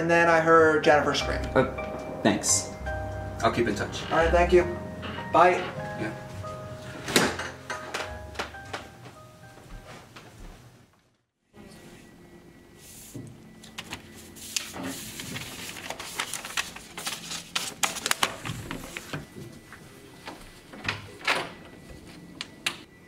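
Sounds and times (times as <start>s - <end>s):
paper rustling: 13.7s - 19.3s.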